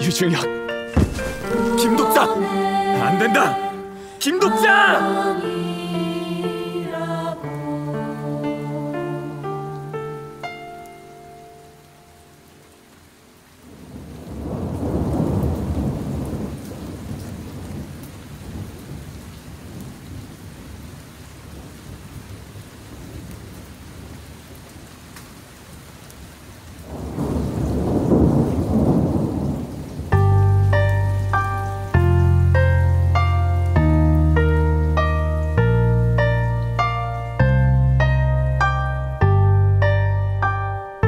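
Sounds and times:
steady rain: 0:00.0 - 0:41.0
thunder rolling: 0:01.0 - 0:02.8, 0:13.7 - 0:20.3, 0:26.9 - 0:30.2.

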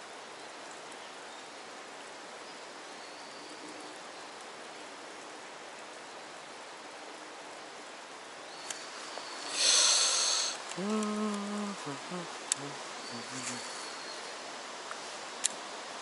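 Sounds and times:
falling water hissing: 0:08.6 - 0:16.0.

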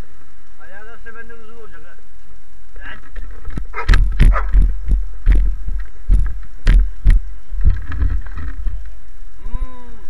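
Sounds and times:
wind rumble on microphone: 0:01.6 - 0:10.0
knocks and thumps on microphone: 0:03.2 - 0:08.8.

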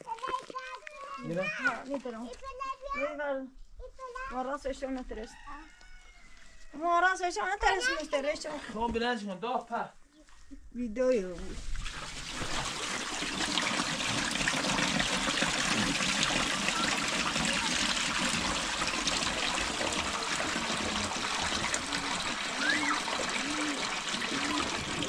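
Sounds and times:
water pouring from jerrycan: 0:11.6 - 0:25.0.

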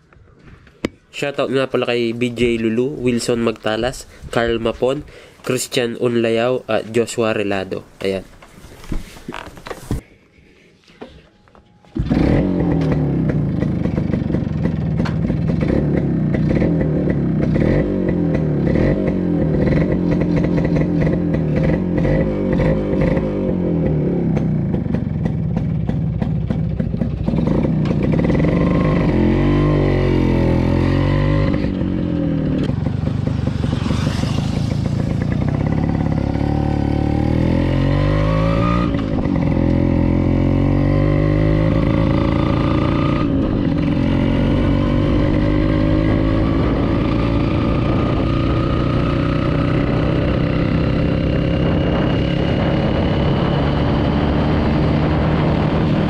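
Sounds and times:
motorcycle engine accelerating: 0:12.0 - 0:56.0.

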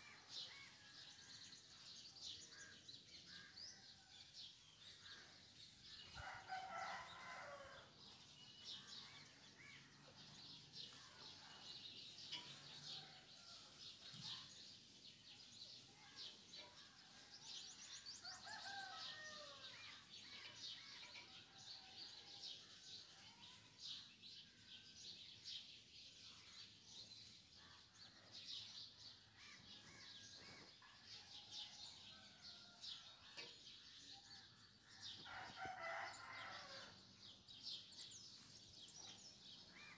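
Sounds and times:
rooster crowing: 0:35.3 - 0:36.9.

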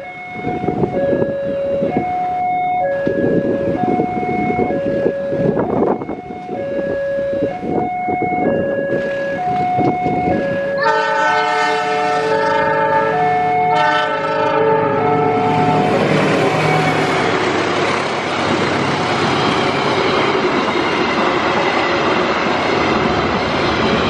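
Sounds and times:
level crossing two-tone alarm: 0:00.0 - 0:17.4
diesel train rumbling on track: 0:00.0 - 0:24.0
train air horn blast: 0:10.4 - 0:17.1.

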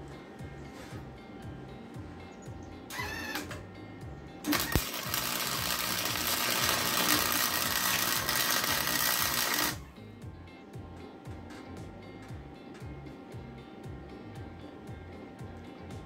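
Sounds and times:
background music: 0:00.0 - 0:16.0
welding arc crackling: 0:02.9 - 0:03.6, 0:04.4 - 0:09.9.

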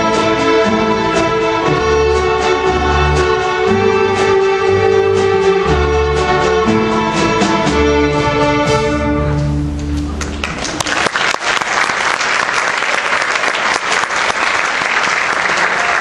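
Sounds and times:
string orchestra holding notes: 0:00.0 - 0:10.8
audience applauding: 0:09.8 - 0:16.0.

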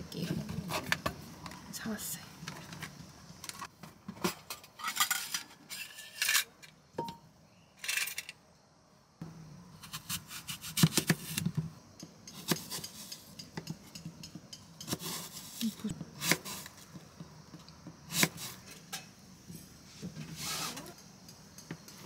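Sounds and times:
knife slicing apple: 0:14.8 - 0:16.8.

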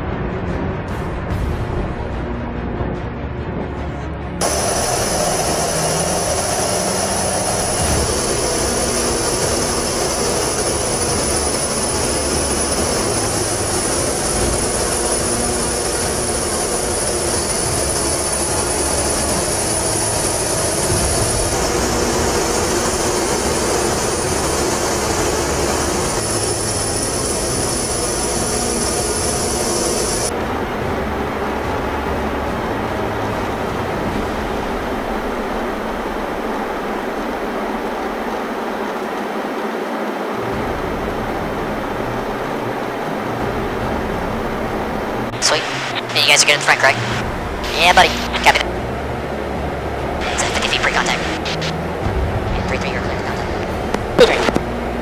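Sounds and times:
jet engine rush: 0:04.4 - 0:30.3, 0:45.3 - 0:48.6, 0:50.2 - 0:54.7
high jet engine whine: 0:04.4 - 0:55.0.

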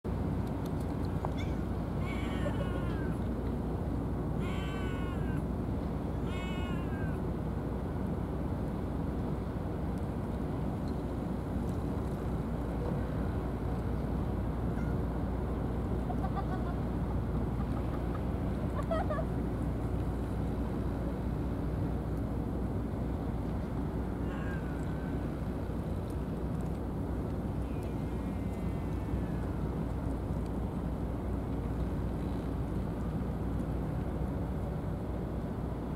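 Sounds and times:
low outdoor rumble: 0:00.1 - 0:35.9
cat meowing: 0:01.4 - 0:03.2, 0:04.4 - 0:05.4, 0:06.3 - 0:07.2.

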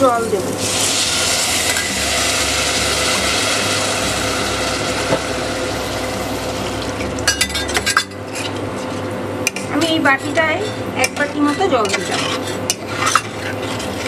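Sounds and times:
water hissing and bubbling in pot: 0:00.0 - 0:08.5
low hum: 0:01.0 - 0:09.3.

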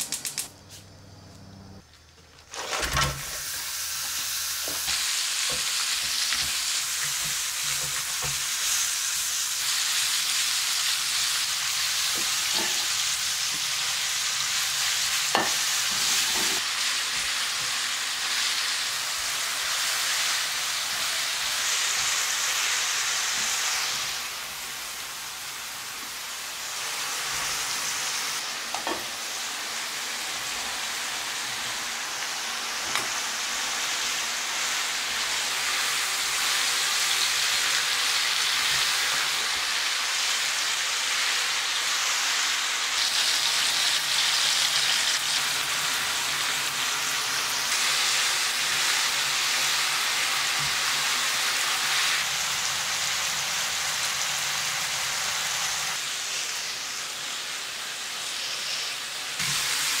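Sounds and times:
food sizzling in a frying pan: 0:02.5 - 1:00.0.

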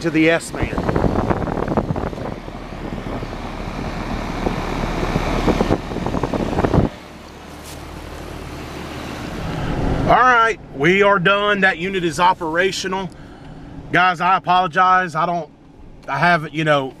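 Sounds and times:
air conditioner fan and compressor: 0:00.0 - 0:17.0
handling rustles and knocks: 0:07.5 - 0:08.3.

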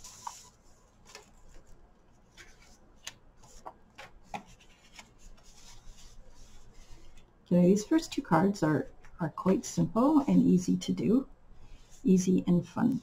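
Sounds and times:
paper rustling: 0:00.0 - 0:07.3.

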